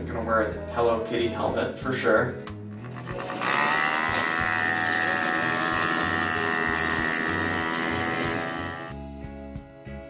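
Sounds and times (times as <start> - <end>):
small engine buzzing at high revs: 2.7 - 9.0.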